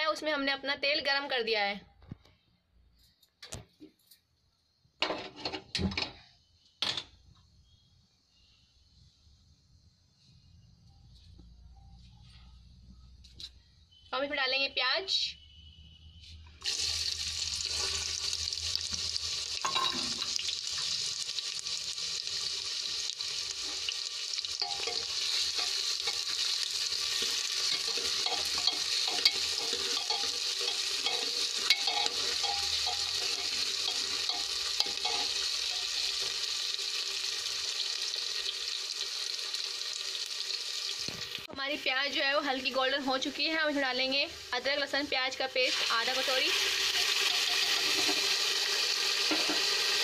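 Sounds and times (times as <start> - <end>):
onions sizzling in hot oil: 16.6 - 50.0
steel ladle scraping pot: 24.6 - 36.4, 46.8 - 48.5.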